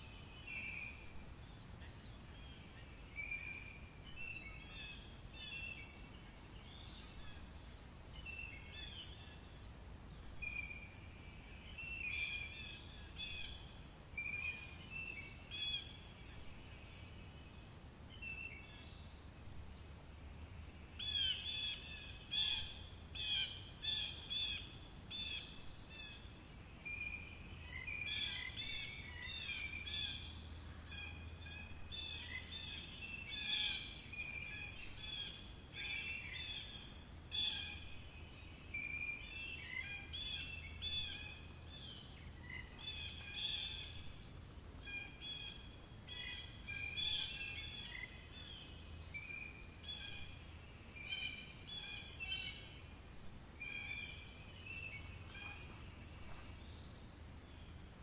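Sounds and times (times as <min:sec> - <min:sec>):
faint steady low hum: 0:00.0 - 0:58.0
birds calling and chirping: 0:21.0 - 0:52.9, 0:53.6 - 0:58.0.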